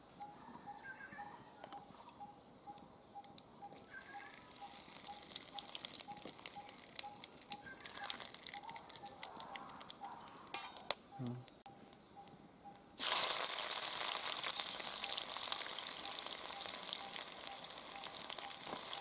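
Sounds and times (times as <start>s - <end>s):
faint high peep: 0.1s - 10.2s
spices sizzling in hot oil: 4.3s - 10.9s, 13.0s - 19.0s.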